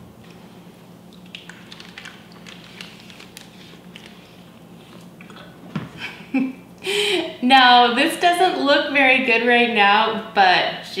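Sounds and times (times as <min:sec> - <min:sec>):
wet plastic bag crinkling: 0:01.2 - 0:04.6.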